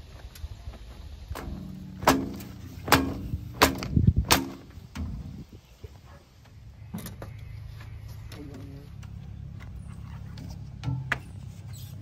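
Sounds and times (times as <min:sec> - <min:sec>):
low steady hum: 0:00.0 - 0:12.0
dull thumps: 0:01.3 - 0:05.4
sharp metal clanks: 0:01.4 - 0:05.1.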